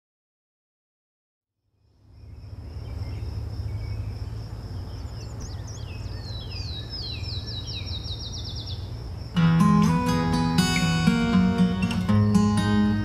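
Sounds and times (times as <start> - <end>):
high insect trill: 1.7 - 13.0
bird calling in whistled notes: 2.2 - 8.9.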